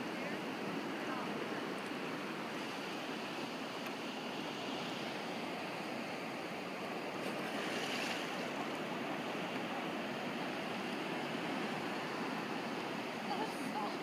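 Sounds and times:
ocean surf and waves: 0.0 - 14.0.

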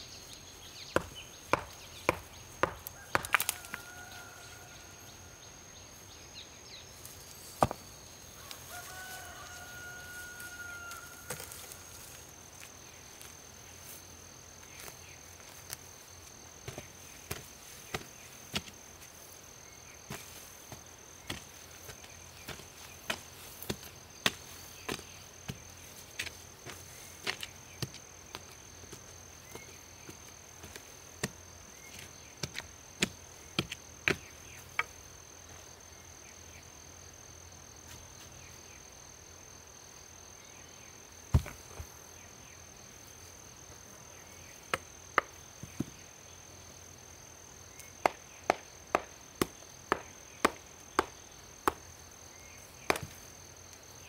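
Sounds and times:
high insect drone: 0.0 - 54.0
stone striking a lump of ore: 1.0 - 3.6
wooden stick knocking into stony soil: 1.0 - 3.8, 7.5 - 7.8, 16.6 - 18.8, 20.1 - 35.0, 41.3 - 41.9, 48.0 - 51.9, 52.8 - 53.2.

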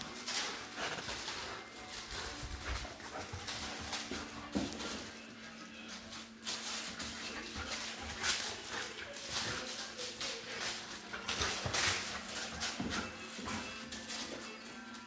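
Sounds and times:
dog chewing crinkle toy: 0.0 - 14.9.

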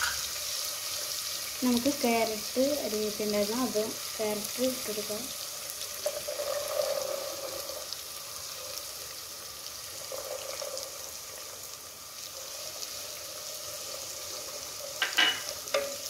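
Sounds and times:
vegetables sizzling in hot oil: 0.0 - 16.0.

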